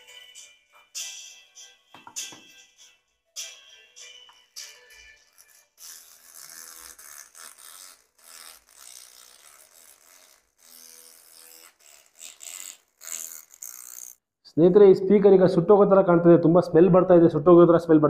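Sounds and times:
distorted song from tiny speaker: 0:00.0 - 0:05.7.

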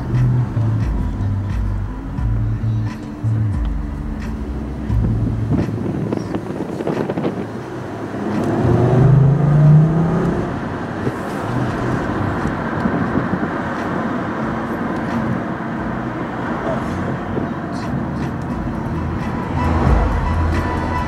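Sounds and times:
car engine accelerating: 0:00.0 - 0:21.0
tyre and road noise: 0:00.0 - 0:21.0.

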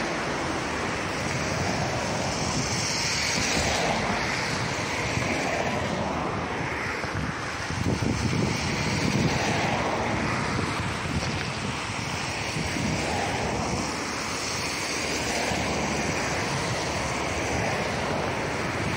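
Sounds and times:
distant train rumble: 0:00.0 - 0:18.9
wind buffeting microphone: 0:00.0 - 0:18.9.

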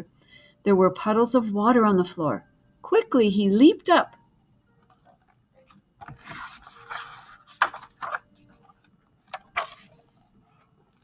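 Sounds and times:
book pages turning: 0:04.8 - 0:11.0
paper flaps: 0:06.0 - 0:08.6, 0:09.2 - 0:11.0.

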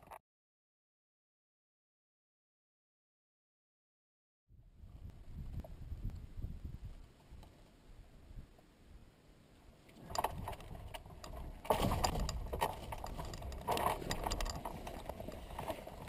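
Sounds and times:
glider frame rattling: 0:10.0 - 0:16.0.

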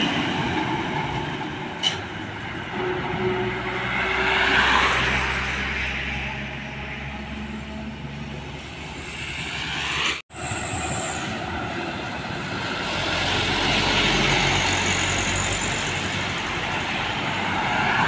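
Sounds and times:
truck driving past: 0:02.6 - 0:16.5.

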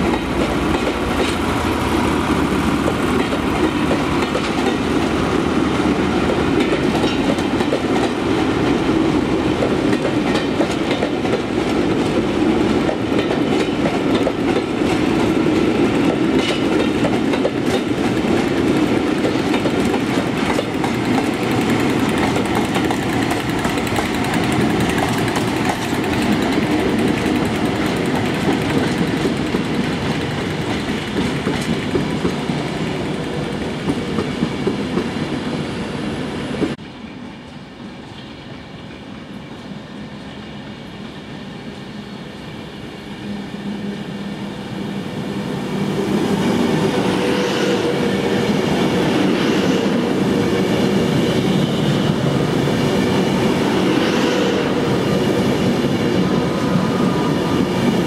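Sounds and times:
train wheels rumbling on rails: 0:00.0 - 0:58.0
wheels clicking over rail joints: 0:16.0 - 0:35.1.

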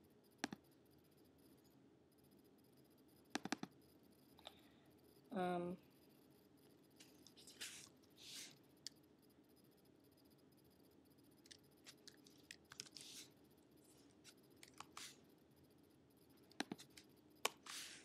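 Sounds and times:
faint low hum: 0:00.0 - 0:18.0
computer mouse clicks: 0:00.4 - 0:00.8, 0:03.3 - 0:03.8, 0:11.4 - 0:13.3, 0:14.2 - 0:15.2, 0:16.4 - 0:18.0
soft hisses: 0:07.0 - 0:08.6, 0:12.8 - 0:13.3, 0:13.9 - 0:15.2, 0:16.8 - 0:18.0.

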